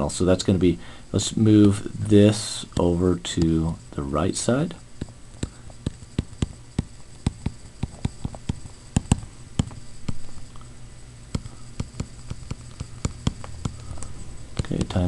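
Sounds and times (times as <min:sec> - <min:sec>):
low steady hum: 0:00.0 - 0:15.0
stylus tapping on tablet screen: 0:05.0 - 0:10.4, 0:11.3 - 0:14.0.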